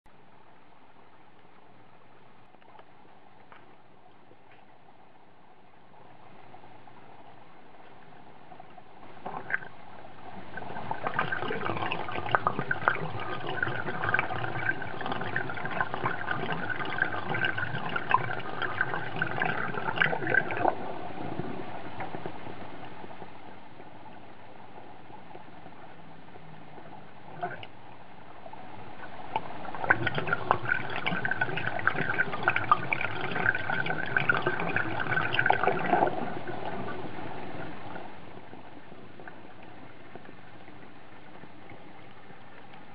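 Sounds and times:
water gurgling and splashing: 0:08.1 - 0:42.9.

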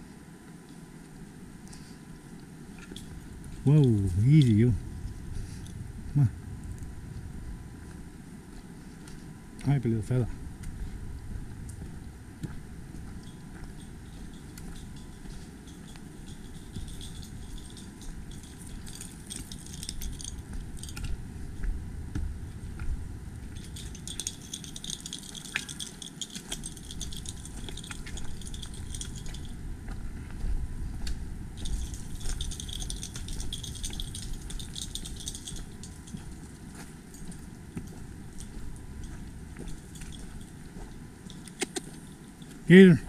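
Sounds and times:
footsteps in brush: 0:23.6 - 0:42.5.

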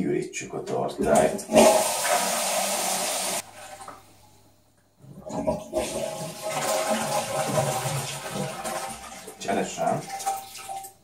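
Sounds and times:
toilet water rushing: 0:01.0 - 0:04.0, 0:05.2 - 0:11.0.

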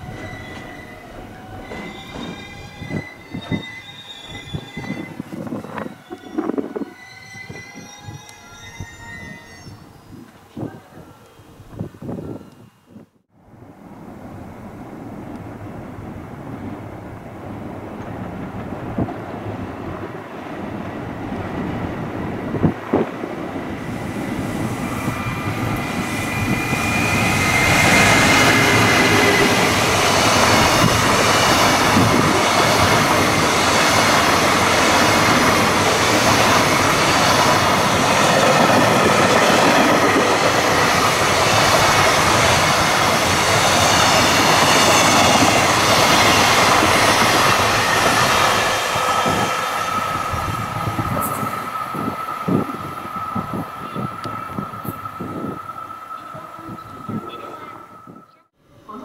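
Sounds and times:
train wheels on rails: 0:00.0 - 0:09.2, 0:15.2 - 0:58.3
high wheel whines: 0:23.8 - 0:57.2.

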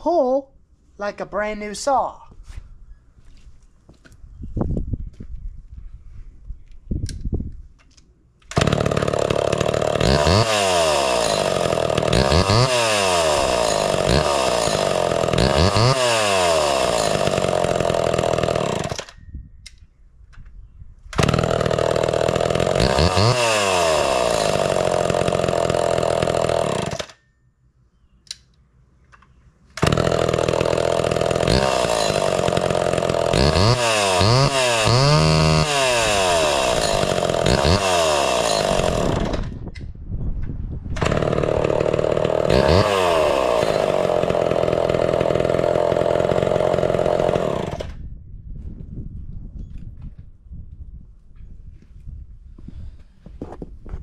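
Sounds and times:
chainsaw revving: 0:08.5 - 0:19.2, 0:21.2 - 0:27.2, 0:29.8 - 0:39.5, 0:41.0 - 0:48.0.

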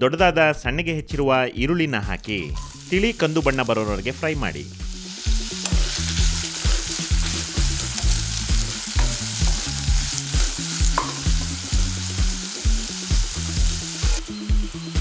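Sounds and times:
onion sizzling in oil: 0:02.3 - 0:15.0.

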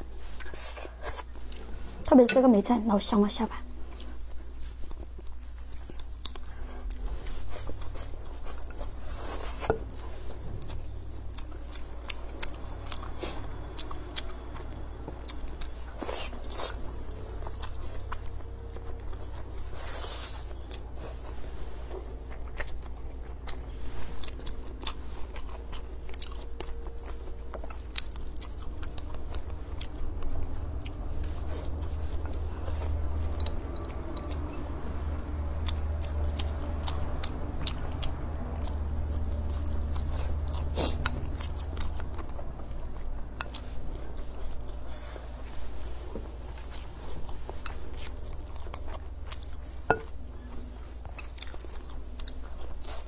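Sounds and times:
close chewing and biting: 0:00.0 - 0:02.6, 0:03.7 - 0:53.0
steady low hum: 0:00.0 - 0:53.0.

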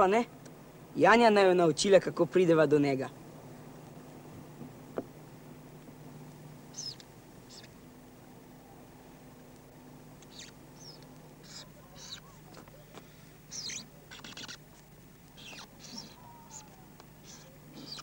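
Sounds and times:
faint steady hum: 0:00.0 - 0:18.0
marker squeaking on paper: 0:10.3 - 0:10.6, 0:11.4 - 0:12.6, 0:13.5 - 0:14.6, 0:15.4 - 0:16.6.

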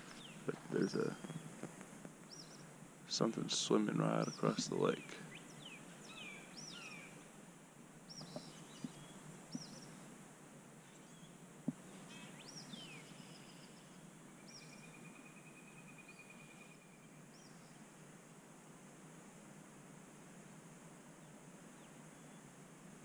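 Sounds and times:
faint bird calls: 0:00.0 - 0:07.3, 0:08.0 - 0:10.1, 0:10.8 - 0:17.8.

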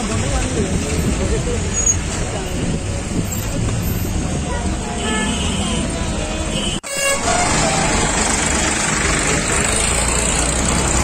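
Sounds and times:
diesel tractor and truck engines: 0:00.0 - 0:11.0
horn toot: 0:05.0 - 0:08.2.

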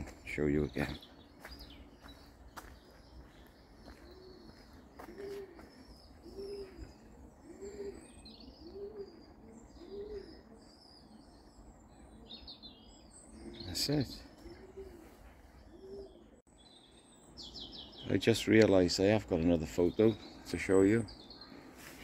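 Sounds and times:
small birds chirping: 0:00.0 - 0:22.0
pigeon cooing: 0:03.2 - 0:16.4.

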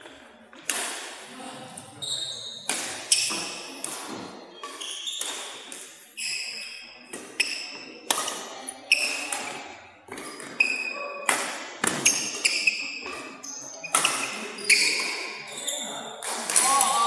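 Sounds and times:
racket hitting shuttlecock: 0:00.5 - 0:01.2, 0:02.6 - 0:05.9, 0:06.6 - 0:15.3, 0:16.2 - 0:17.0
sneakers squeaking on court floor: 0:02.0 - 0:16.2.

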